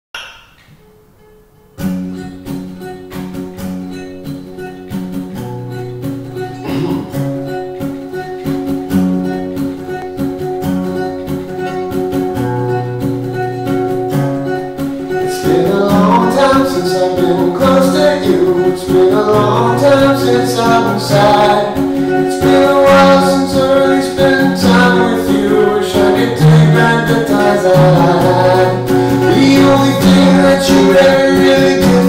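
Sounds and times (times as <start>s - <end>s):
acoustic guitar picking: 0.1s - 32.0s
person singing: 6.4s - 8.3s, 14.5s - 32.0s.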